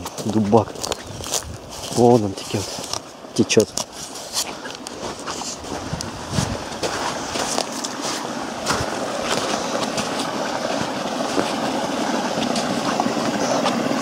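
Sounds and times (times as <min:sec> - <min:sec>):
stream rushing: 0:00.0 - 0:14.0.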